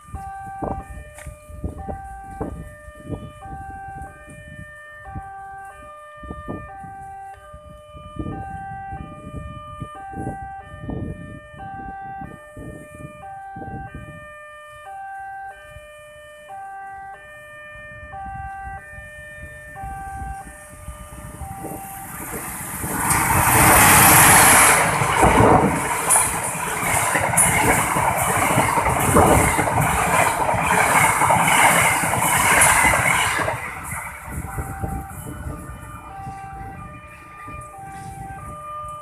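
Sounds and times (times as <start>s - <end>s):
level crossing alarm chime: 0.0s - 22.6s, 32.6s - 39.0s.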